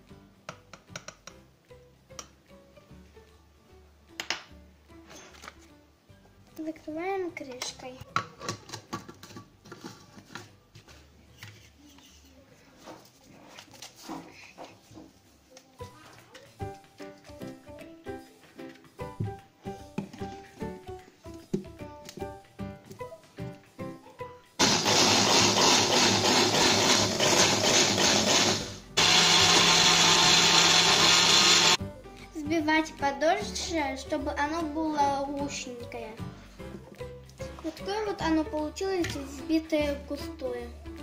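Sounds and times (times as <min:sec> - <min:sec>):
blender motor running: 0:24.6 - 0:31.8.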